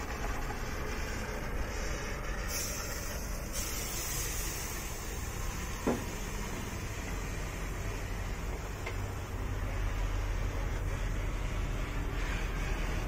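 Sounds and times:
short knock: 5.8 - 6.2.

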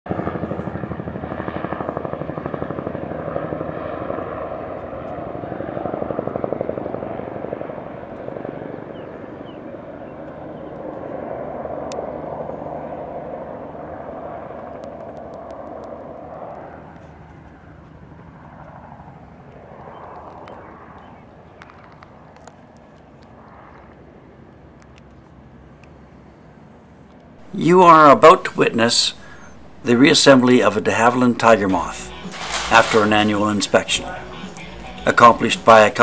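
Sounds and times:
helicopter rotor beating: 27.4 - 36.0.

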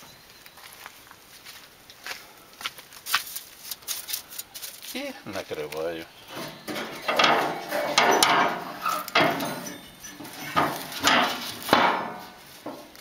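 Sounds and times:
metal grill lid clanking shut: 6.3 - 12.9.

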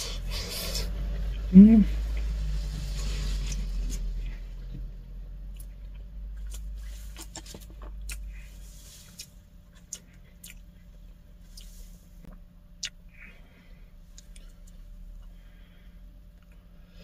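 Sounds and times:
steady low hum: 0.0 - 17.0
person chewing food: 5.5 - 15.4.

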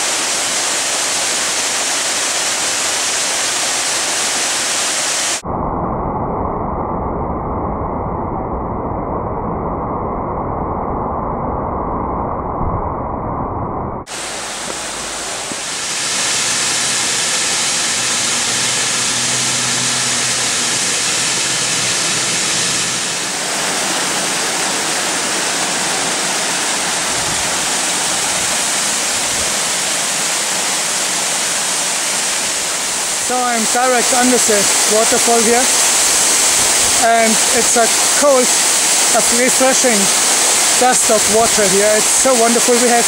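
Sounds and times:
waterfall rushing: 0.0 - 5.4, 14.1 - 43.0.

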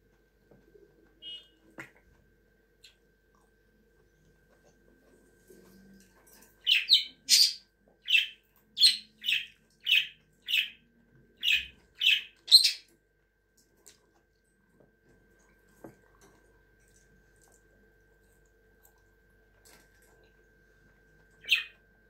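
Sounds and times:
budgerigar chirping: 6.6 - 10.8, 11.4 - 12.9.

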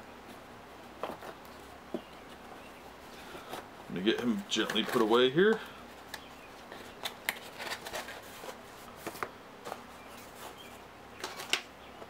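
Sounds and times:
small box clicking and rustling: 3.5 - 9.9, 11.2 - 11.7.

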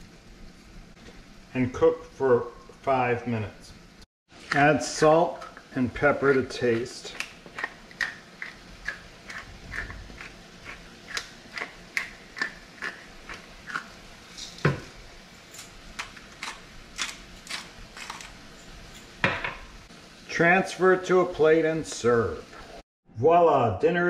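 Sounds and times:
pepper mill grinding clicks: 6.2 - 14.6, 15.6 - 18.4.

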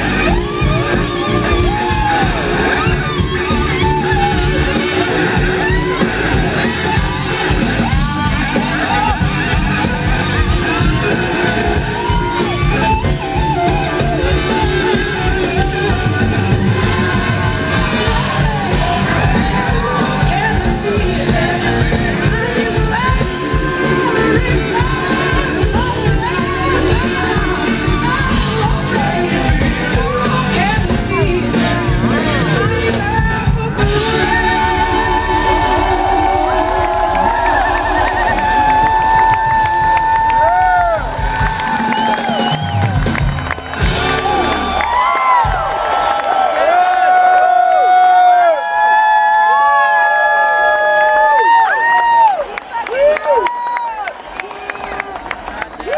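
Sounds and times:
audience whooping and shouting: 0.0 - 31.2, 33.8 - 55.9
live blues-rock band: 0.0 - 46.6
woman singing: 10.5 - 39.6.

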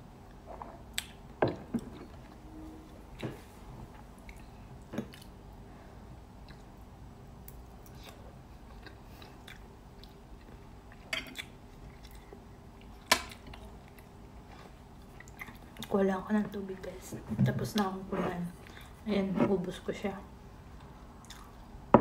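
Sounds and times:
person chewing food: 4.2 - 5.4, 6.4 - 6.8, 7.4 - 15.9, 21.2 - 21.7.

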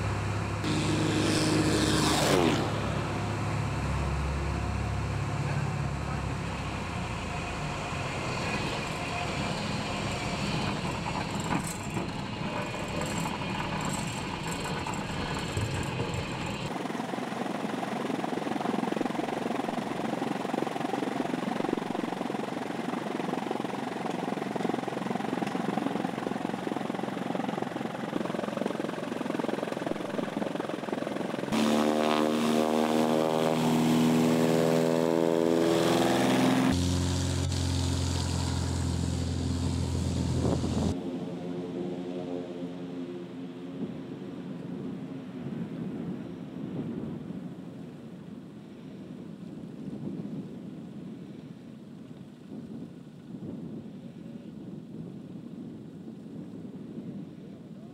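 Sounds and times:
propeller plane cabin rumble: 0.0 - 16.8, 31.5 - 44.3.

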